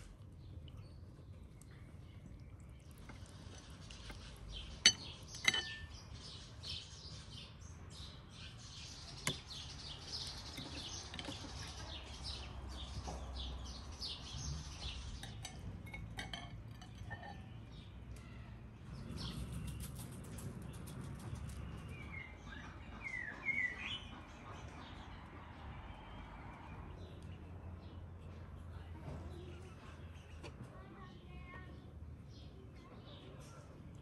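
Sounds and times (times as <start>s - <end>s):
birds chirping: 0.0s - 34.0s
metal spoon clinking on bowl: 4.8s - 6.0s, 15.0s - 17.7s.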